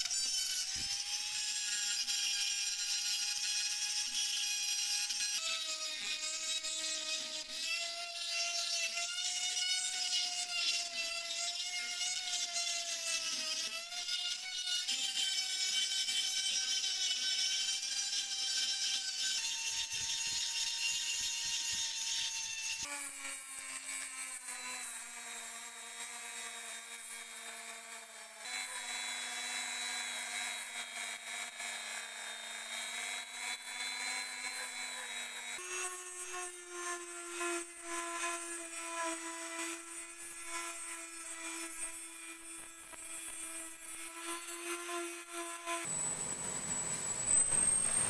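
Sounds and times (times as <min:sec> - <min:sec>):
rotary tool grinding metal: 0:00.0 - 0:48.0
sanding disc power tool whine: 0:28.0 - 0:48.0.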